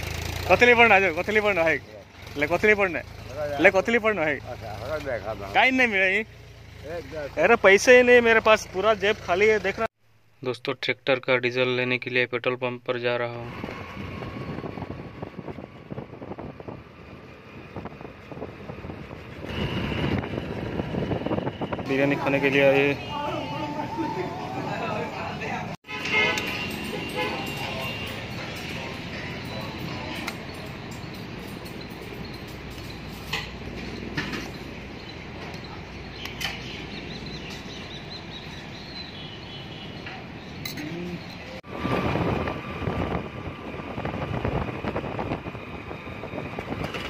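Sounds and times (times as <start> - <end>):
wind buffeting microphone: 13.5 - 22.8, 41.6 - 47.0
bird chirping: 29.3 - 41.6.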